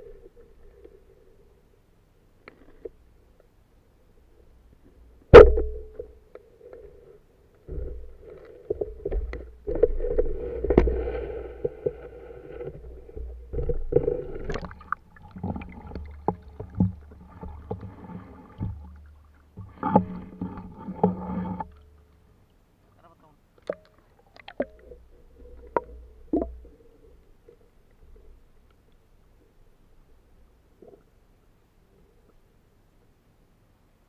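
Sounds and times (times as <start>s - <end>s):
muffled underwater rumbling: 5.1s - 22.7s
bubbling water: 13.0s - 19.6s.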